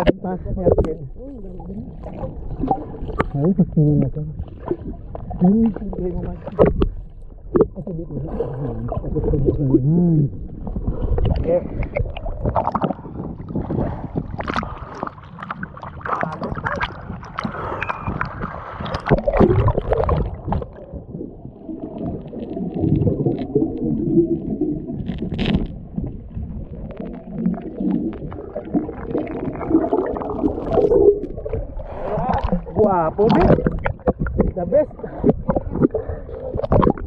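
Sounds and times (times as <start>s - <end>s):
underwater gurgling and bubbling: 0.0s - 37.0s
seawater sloshing and splashing: 10.6s - 37.0s.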